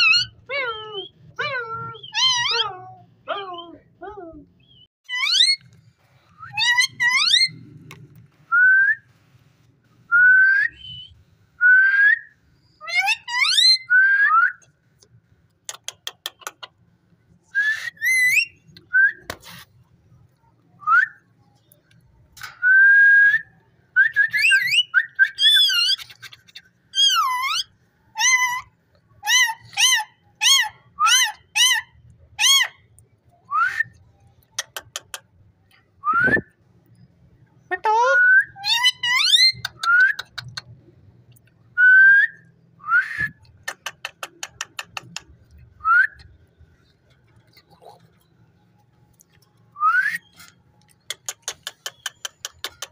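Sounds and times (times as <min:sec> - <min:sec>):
sharp clicks: 0:43.4 - 0:45.4, 0:50.4 - 0:52.9.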